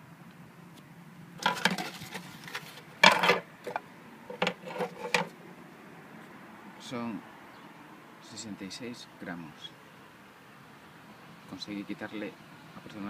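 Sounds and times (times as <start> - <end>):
carbon frame pieces knocking: 1.4 - 2.2, 3.0 - 5.3.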